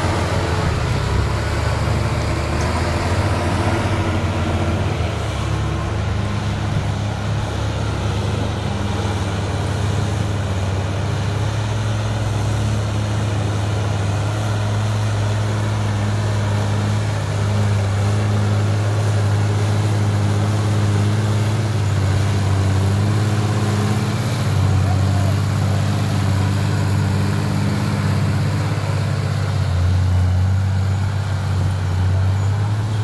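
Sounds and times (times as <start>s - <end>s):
tractor diesel engine under load: 0.0s - 33.0s.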